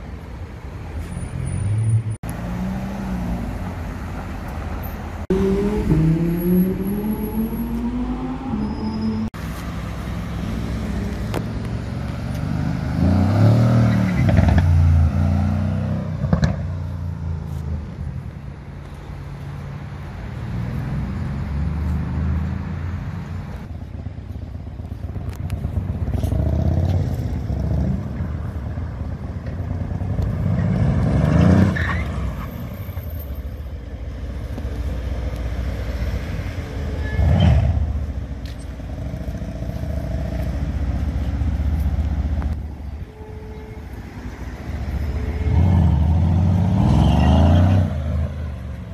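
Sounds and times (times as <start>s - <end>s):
traffic noise: 0.0s - 48.9s
car engines revving past: 1.3s - 18.0s, 19.2s - 23.7s, 25.6s - 33.0s, 44.1s - 48.9s.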